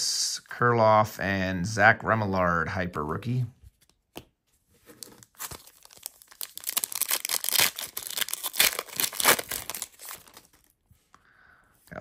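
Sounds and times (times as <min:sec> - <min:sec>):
foil wrapper tearing and crinkling: 0:05.0 - 0:10.7.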